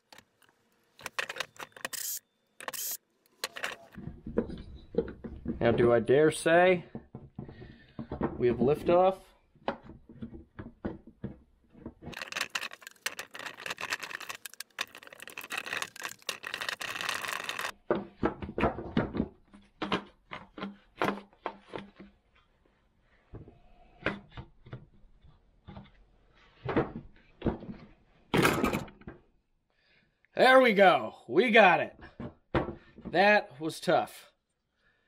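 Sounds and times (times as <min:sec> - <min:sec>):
metal rattling against plastic: 0:12.1 - 0:17.7
scraping: 0:12.1 - 0:17.7.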